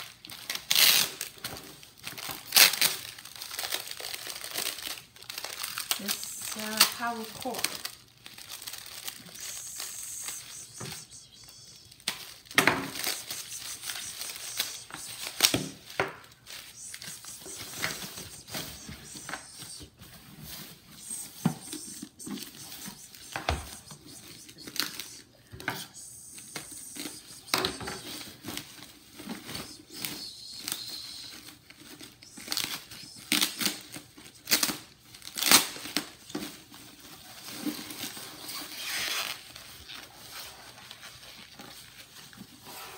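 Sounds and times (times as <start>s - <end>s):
plastic packaging crinkling: 0.0s - 42.7s.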